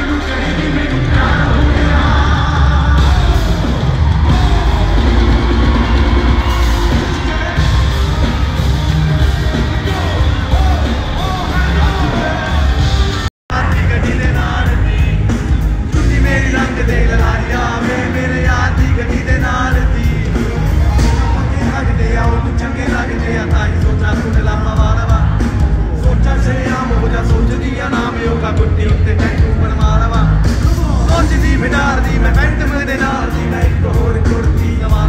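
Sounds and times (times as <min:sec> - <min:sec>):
bass-heavy song with singing: 0:00.0 - 0:35.0
crowd yelling: 0:00.0 - 0:35.0.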